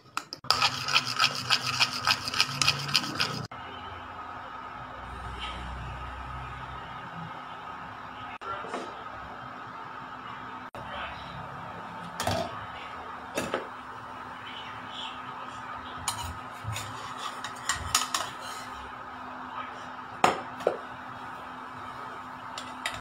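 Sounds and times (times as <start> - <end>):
cooktop electric hum: 0.0 - 23.0
spatula scraping saucepan: 0.4 - 3.5, 16.1 - 18.8.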